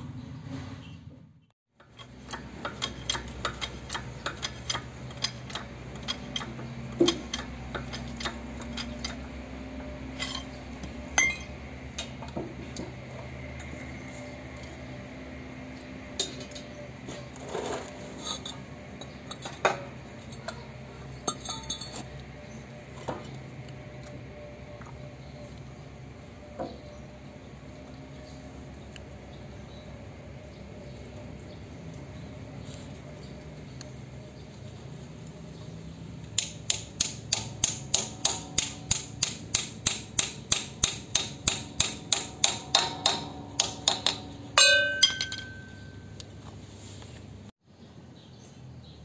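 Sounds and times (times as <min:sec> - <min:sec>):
steel tools clinking and tapping: 0:01.8 - 0:12.9, 0:16.1 - 0:16.8, 0:18.2 - 0:22.2, 0:36.4 - 0:46.4
sharp metal knocks: 0:36.4 - 0:46.2.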